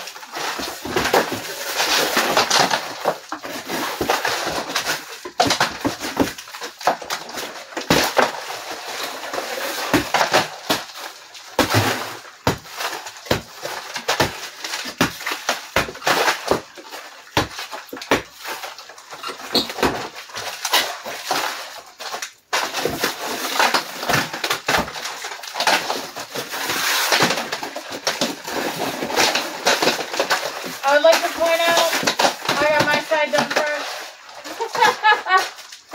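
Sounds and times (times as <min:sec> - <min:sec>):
plaster cracking and clattering down: 0:00.0 - 0:35.9.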